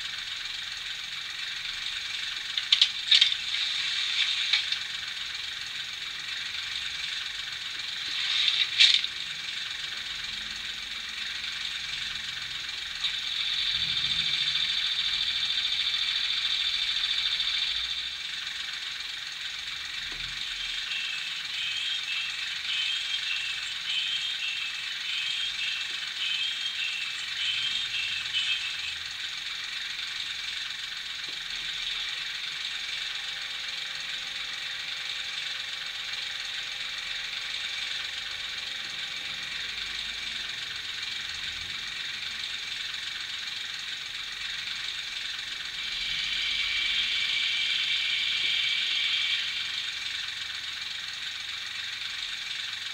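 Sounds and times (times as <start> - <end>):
sander hiss: 0.0 - 10.5, 39.6 - 52.9
cooling fan hum: 0.0 - 52.9
diesel engine idling with rattle: 0.0 - 52.9.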